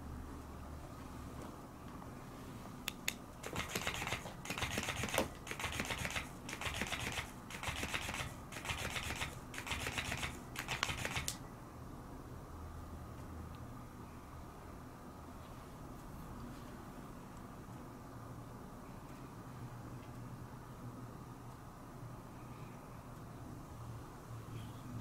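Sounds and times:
toy clicks: 0:02.9 - 0:11.4
toy fish flapping on wooden floor: 0:03.4 - 0:11.4.

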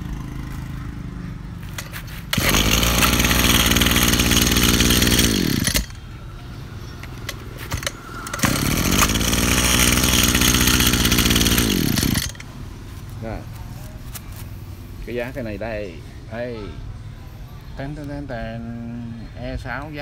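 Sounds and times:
brush cutter engine revving: 0:01.7 - 0:06.0, 0:07.6 - 0:12.4.

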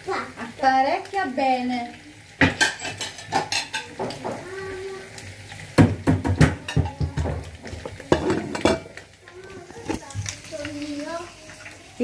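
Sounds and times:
dishes clattering on counter: 0:02.4 - 0:04.4, 0:05.8 - 0:09.0.

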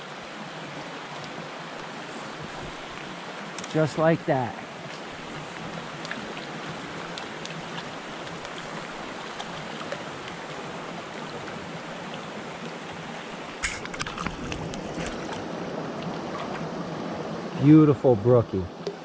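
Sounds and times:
brook running over stones: 0:00.0 - 0:17.8
fish splashing in water: 0:04.7 - 0:17.0.

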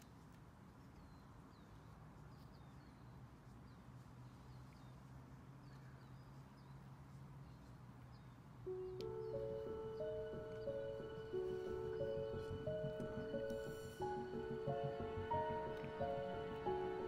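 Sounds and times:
faint bird chirps: 0:07.4 - 0:16.3
low steady hum: 0:08.6 - 0:17.0.

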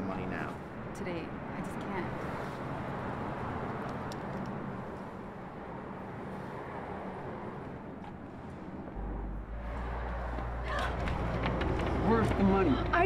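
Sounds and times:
cars passing: 0:00.0 - 0:13.0
deep low rumble: 0:08.9 - 0:12.0.

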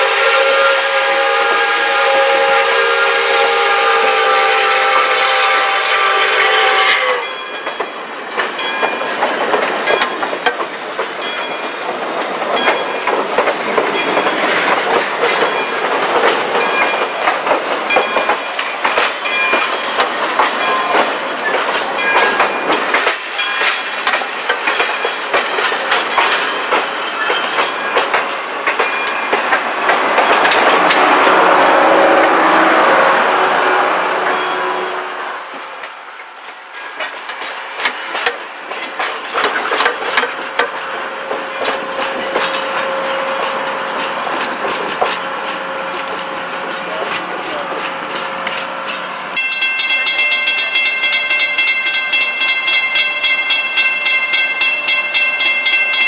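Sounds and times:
steam whistle chord: 0:00.0 - 0:07.4, 0:30.6 - 0:35.4
passenger train rumbling past: 0:00.0 - 0:56.0
wheels clicking over rail joints: 0:07.3 - 0:32.4, 0:35.5 - 0:56.0.

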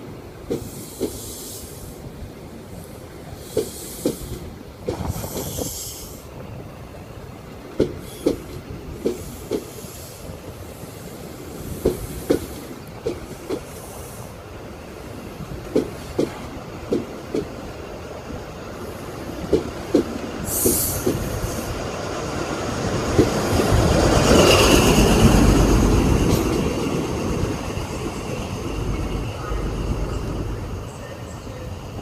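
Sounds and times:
train wheels clicking over rail joint: 0:00.5 - 0:01.8, 0:03.4 - 0:06.2, 0:07.8 - 0:10.2, 0:11.7 - 0:14.2, 0:15.6 - 0:17.6, 0:19.4 - 0:21.7.

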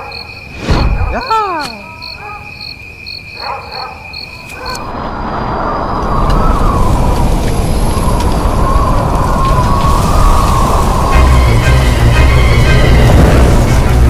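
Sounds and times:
night insect chorus: 0:00.0 - 0:13.7
deep rumbling whoosh: 0:04.8 - 0:14.0.

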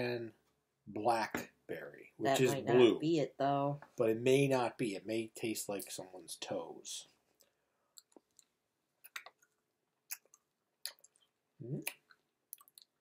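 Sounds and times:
chewing candy wet clicks: 0:07.9 - 0:13.0.

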